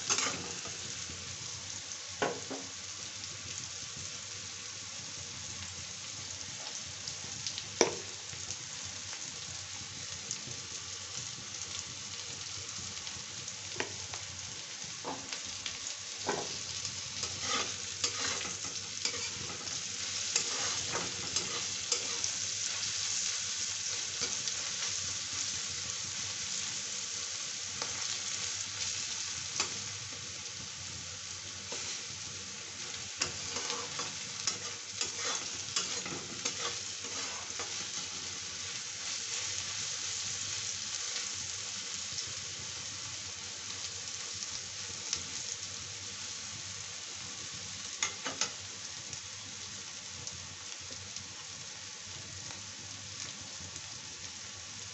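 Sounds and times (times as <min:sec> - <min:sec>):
vegetables sizzling in oil: 0:00.0 - 0:54.9
spatula scraping pan: 0:00.1 - 0:00.7, 0:17.2 - 0:22.4, 0:32.8 - 0:38.4.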